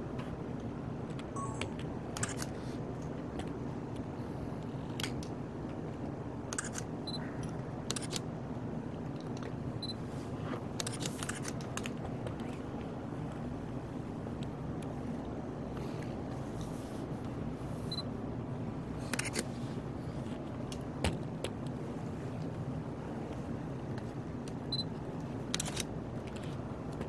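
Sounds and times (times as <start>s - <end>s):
low room hum: 0.0s - 27.0s
camera shutters clicking: 2.2s - 2.5s, 6.5s - 6.9s, 7.9s - 8.3s, 10.8s - 11.9s, 25.5s - 25.9s.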